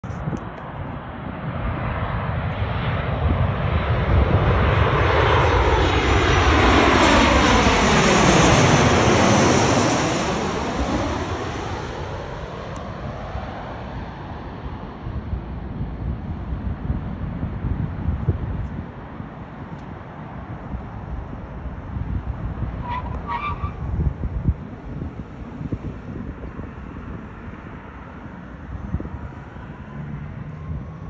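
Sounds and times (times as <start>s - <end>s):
jet engine roar: 0.1s - 31.0s.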